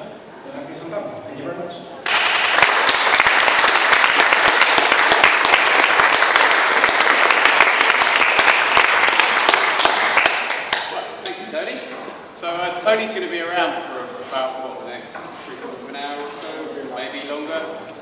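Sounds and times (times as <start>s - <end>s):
audience applauding: 2.0s - 11.0s.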